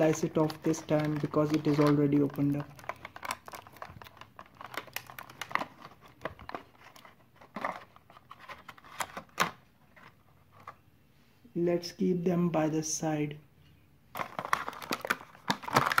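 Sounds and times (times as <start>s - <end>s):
plastic packaging crinkling: 0.0s - 10.8s, 14.1s - 16.0s.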